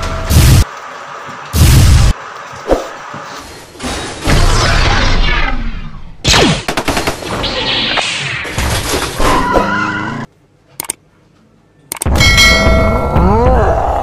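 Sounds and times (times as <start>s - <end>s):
mechanical clatter and crashes: 3.2s - 9.5s.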